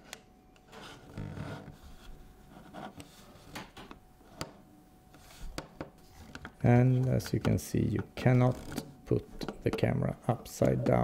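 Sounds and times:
hands rubbing and sliding cameras: 5.2 - 7.6.

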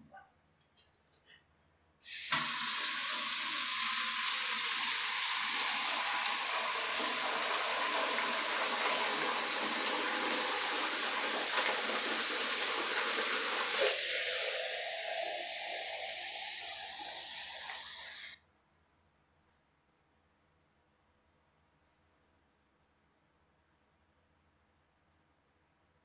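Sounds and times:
tap water splashing into bucket: 2.2 - 14.2.

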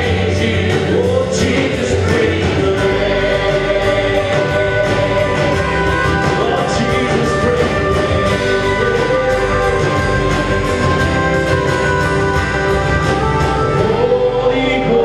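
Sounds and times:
singing: 0.0 - 10.7, 13.7 - 15.0
guitars: 0.0 - 15.0
live band playing: 0.0 - 15.0.

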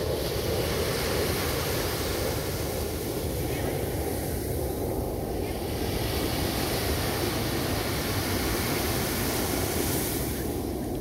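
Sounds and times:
small waves breaking on sand: 0.0 - 11.0.

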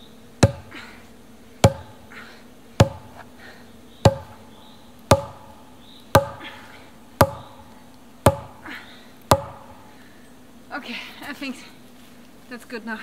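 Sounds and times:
wooden stake being pounded: 0.4 - 0.7, 1.6 - 2.0, 2.8 - 3.2, 4.1 - 4.4, 5.1 - 5.6, 6.2 - 6.5, 7.2 - 8.6, 9.3 - 9.8.

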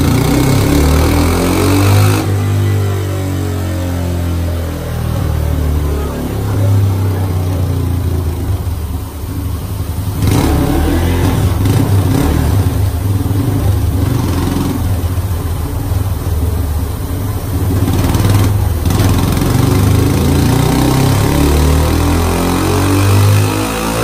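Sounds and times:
motorcycle engine running under load: 0.0 - 24.0.

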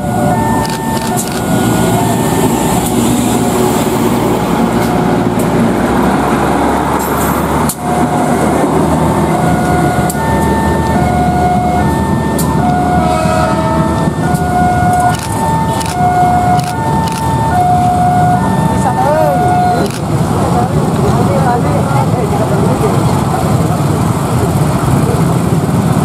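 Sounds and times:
two-tone level crossing alarm: 0.0 - 3.6, 7.6 - 20.1
diesel train passing: 0.0 - 26.0.

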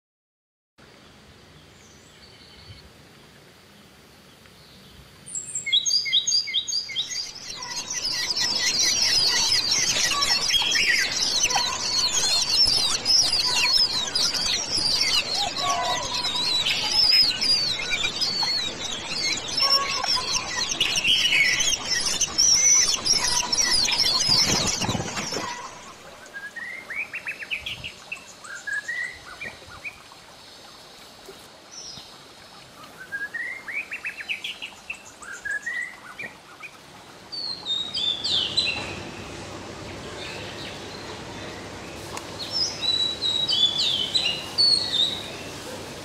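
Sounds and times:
faint hiss: 0.8 - 11.2, 25.3 - 46.0
small birds chirping: 3.7 - 46.0.

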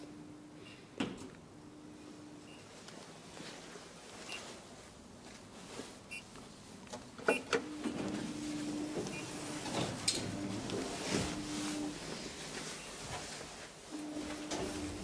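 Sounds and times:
elevator machinery hum: 7.2 - 15.0.

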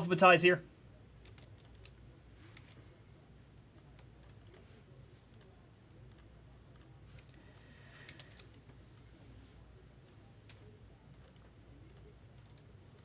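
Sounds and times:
low steady hum: 0.0 - 13.0
computer keyboard clicks: 1.2 - 2.8, 10.5 - 13.0.

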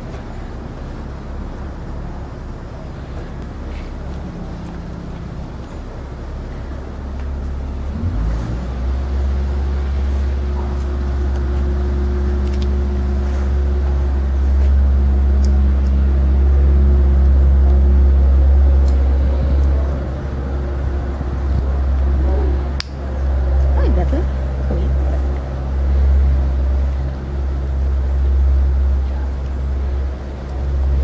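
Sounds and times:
faint steady hum: 0.0 - 31.0
low engine rumble: 0.0 - 31.0.

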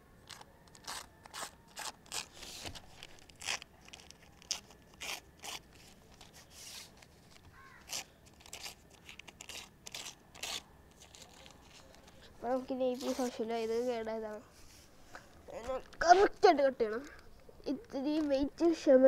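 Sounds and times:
newspaper tearing: 0.2 - 12.3, 12.9 - 13.9.

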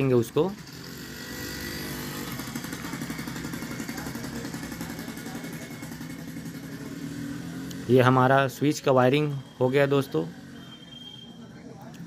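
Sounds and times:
engine running steadily: 0.0 - 7.9.

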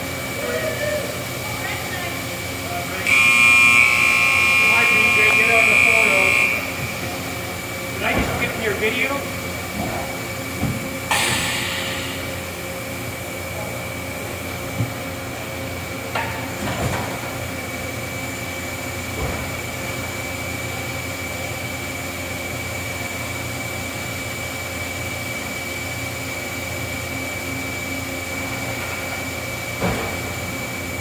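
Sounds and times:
machine hum with high whine: 0.0 - 31.0
machine clunks: 10.6 - 12.4.

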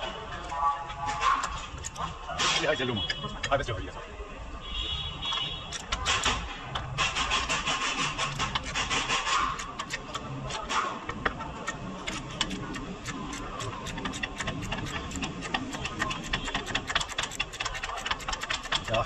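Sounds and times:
hand tools clicking and tapping metal: 1.3 - 3.7, 5.3 - 19.0.

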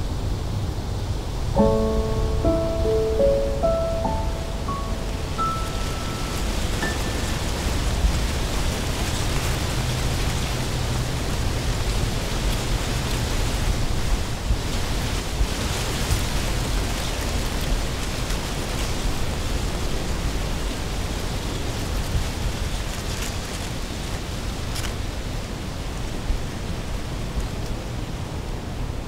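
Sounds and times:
steady rushing noise: 1.6 - 16.8.

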